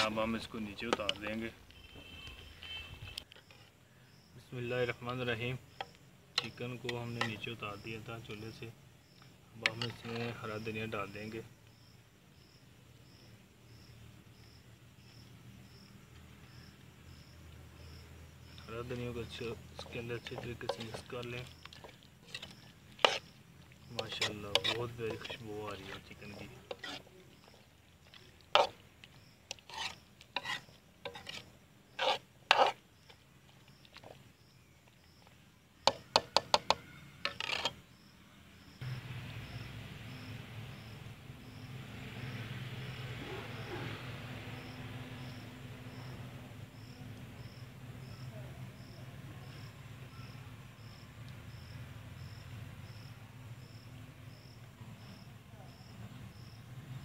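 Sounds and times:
metal spoon scraping a pot: 0.0s - 3.7s, 5.8s - 7.6s, 9.6s - 10.7s, 18.5s - 33.2s, 35.8s - 37.8s
cricket chirping: 0.0s - 57.0s.

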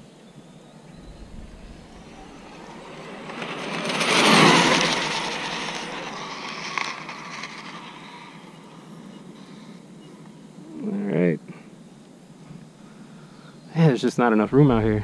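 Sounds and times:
toy car motor passing by: 1.0s - 9.1s.

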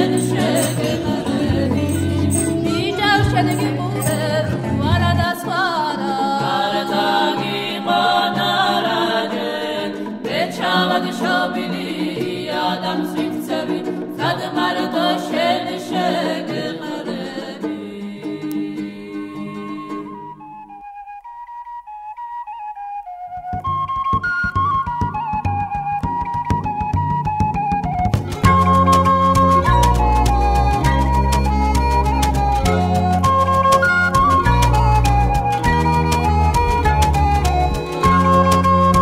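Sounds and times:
person singing: 0.0s - 20.3s.

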